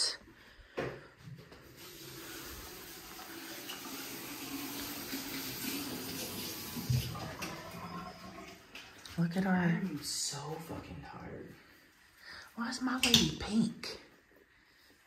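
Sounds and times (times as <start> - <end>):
water running from a tap: 1.6 - 9.2.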